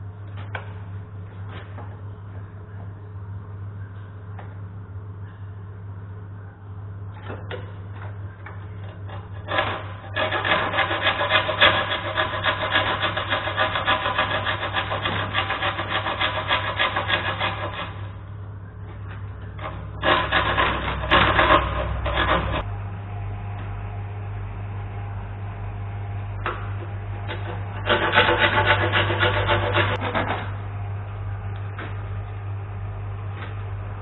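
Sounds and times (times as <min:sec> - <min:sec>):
steady low hum: 0:00.0 - 0:34.0
hand file rasping on plastic: 0:09.0 - 0:18.2, 0:19.6 - 0:22.6, 0:27.3 - 0:30.4.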